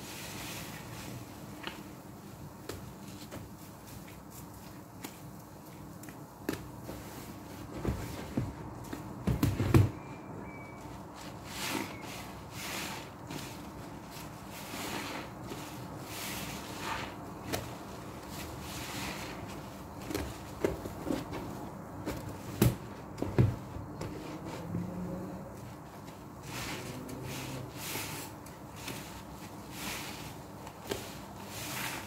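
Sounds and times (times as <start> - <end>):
wet sponges squelching: 11.0 - 21.6, 24.0 - 32.0.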